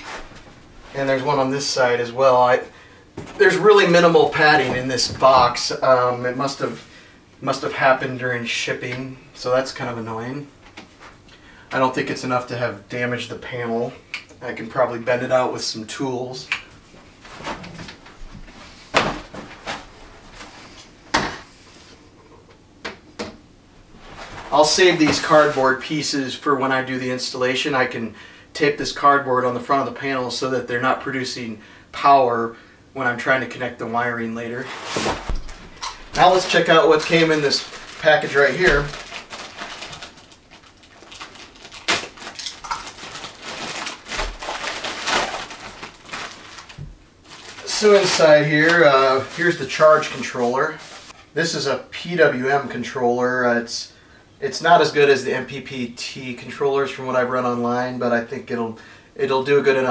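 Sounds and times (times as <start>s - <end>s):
plastic bag crinkling: 35.0s - 51.1s
soft rustling of cardboard: 43.0s - 51.3s.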